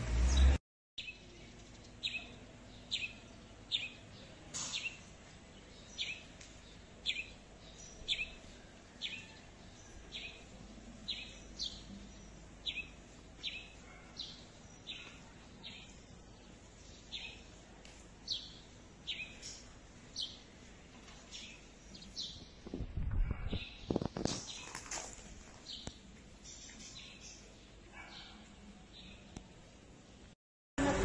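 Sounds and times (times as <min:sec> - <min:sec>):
bird chirping: 0:18.3 - 0:20.4, 0:25.6 - 0:29.3.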